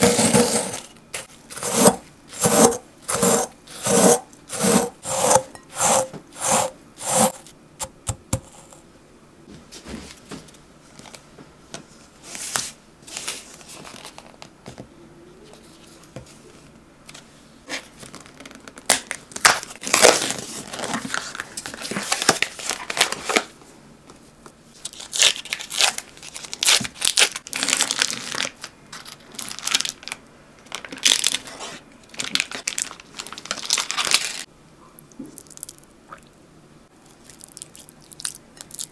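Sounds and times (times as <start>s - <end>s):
wrapping crinkling: 24.8s - 34.5s
cookies being crushed: 24.9s - 31.5s, 32.1s - 34.5s.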